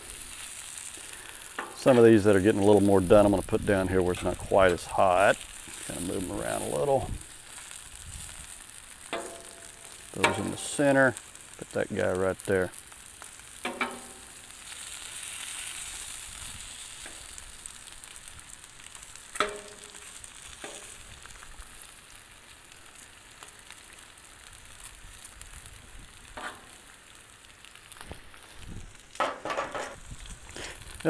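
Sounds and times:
food sizzling on a griddle: 0:00.0 - 0:31.0
metal spatula scraping griddle: 0:26.4 - 0:26.8, 0:29.2 - 0:30.0.

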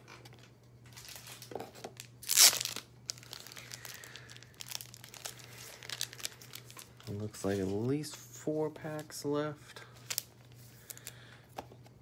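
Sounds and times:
foil wrapper crinkling: 0:00.9 - 0:07.8, 0:09.9 - 0:11.3
foil wrapper ripping: 0:01.0 - 0:07.2.

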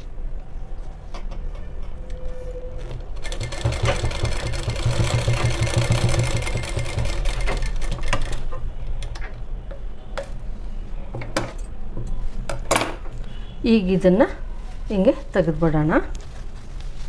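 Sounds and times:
sewing machine stitching: 0:03.1 - 0:08.5.

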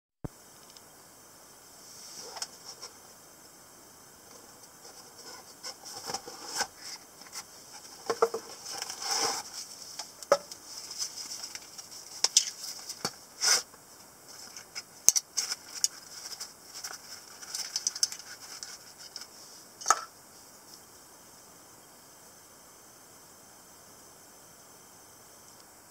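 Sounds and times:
cardboard box rustling and scraping: 0:04.9 - 0:09.7.

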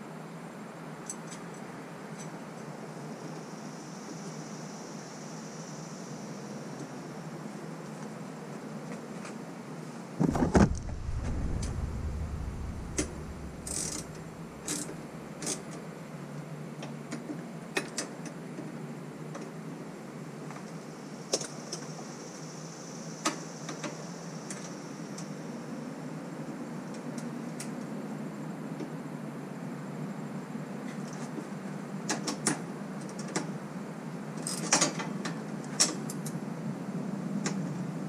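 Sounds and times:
heavy thump and rumble: 0:10.2 - 0:14.7.

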